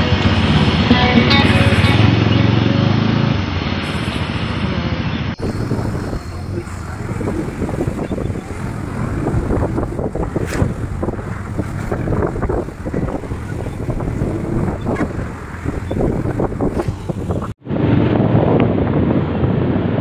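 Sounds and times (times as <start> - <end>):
motorcycle running: 0.0 - 20.0
wind buffeting microphone: 5.3 - 20.0.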